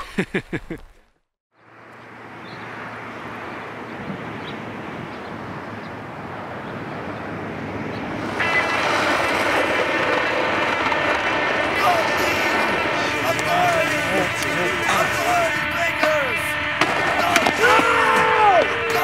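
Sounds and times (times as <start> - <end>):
skateboard wheels rolling on concrete: 4.0 - 19.0
thin high whine: 8.2 - 19.0.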